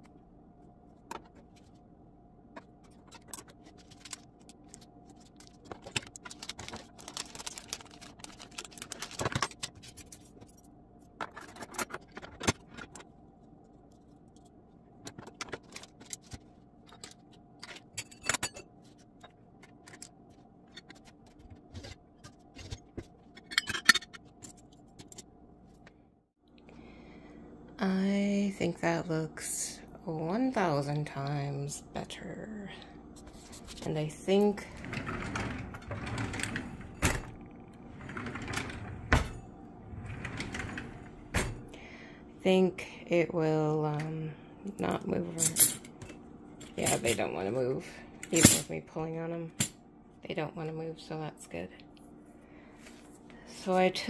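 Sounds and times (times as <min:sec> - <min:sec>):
faint steady hum: 0:00.0 - 0:54.0
metal utensils clinking and scraping: 0:23.4 - 0:25.2.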